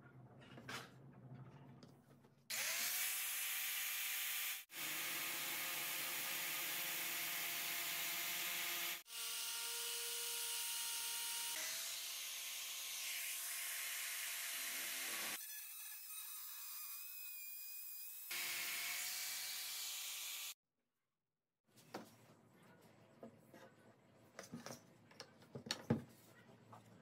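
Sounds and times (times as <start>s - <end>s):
angle grinder cutting pipe: 2.5s - 20.6s.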